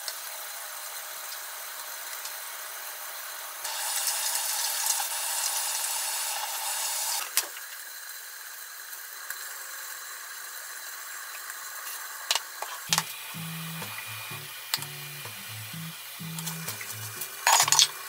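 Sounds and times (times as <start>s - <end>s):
chicken sizzling in frying pan: 3.7s - 7.2s
containers clicking and tapping: 12.9s - 14.0s, 16.2s - 17.9s
music: 12.9s - 18.0s.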